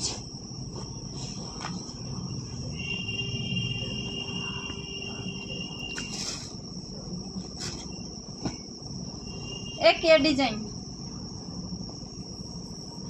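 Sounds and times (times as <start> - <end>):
lower whistling tone: 2.6 - 6.5.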